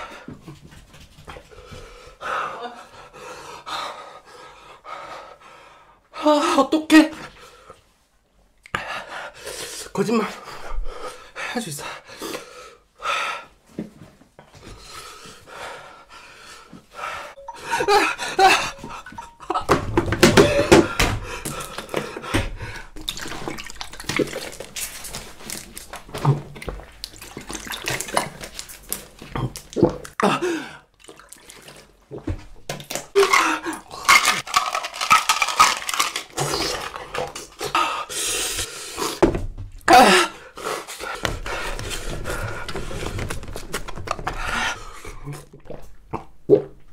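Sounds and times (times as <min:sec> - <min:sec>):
water splashing in plastic bottle: 0:19.7 - 0:30.2, 0:31.0 - 0:37.7
person gasping and breathing: 0:20.2 - 0:23.0, 0:30.2 - 0:30.9, 0:33.2 - 0:34.3.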